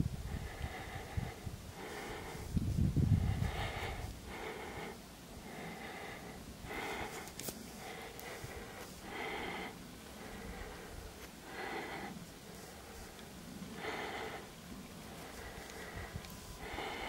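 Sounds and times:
person breathing: 0:00.1 - 0:17.0.

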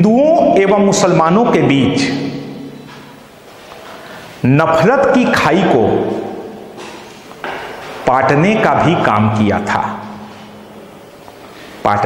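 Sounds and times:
man speaking: 0:00.0 - 0:02.8, 0:04.4 - 0:06.6, 0:08.0 - 0:10.3, 0:11.8 - 0:12.0
faint room hiss: 0:00.0 - 0:12.0.

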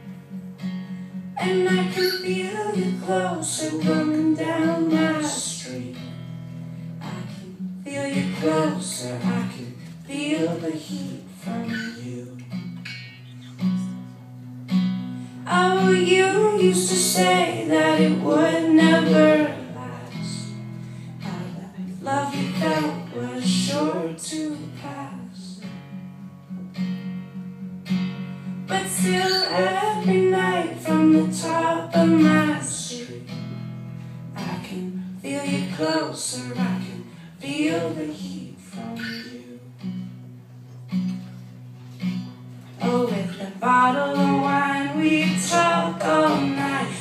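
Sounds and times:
acoustic guitar strumming: 0:00.0 - 0:47.0
person singing: 0:01.4 - 0:06.2, 0:07.0 - 0:12.5, 0:15.4 - 0:25.6, 0:28.7 - 0:33.4, 0:34.4 - 0:39.8, 0:42.8 - 0:47.0.

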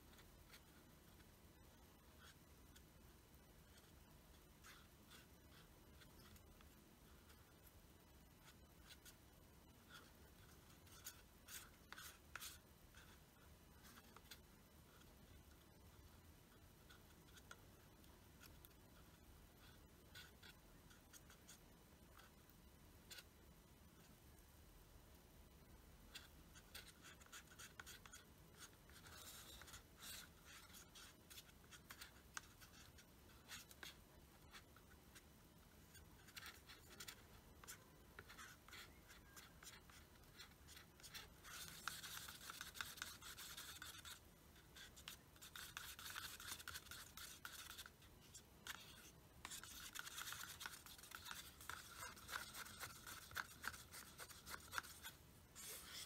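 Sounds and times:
wooden stick scraping paper cup: 0:44.8 - 0:48.0, 0:48.6 - 0:56.0.

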